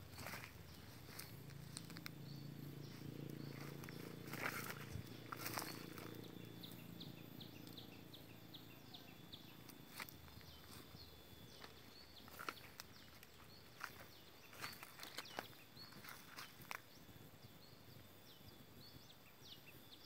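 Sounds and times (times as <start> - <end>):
footsteps rustling through vegetation: 0.0 - 6.9, 9.6 - 16.9
faint steady high tone: 5.7 - 13.5.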